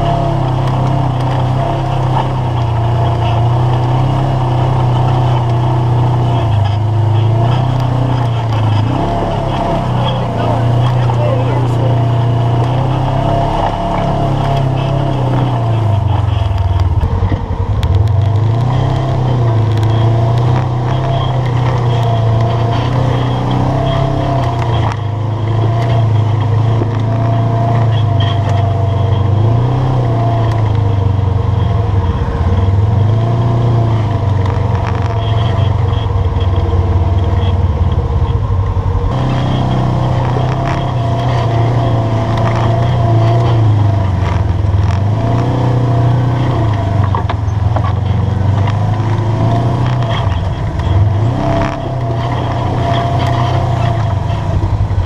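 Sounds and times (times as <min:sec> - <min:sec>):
utility vehicle engine crawling: 0:00.0 - 0:55.0
vehicle knocks and clatter: 0:40.1 - 0:55.0.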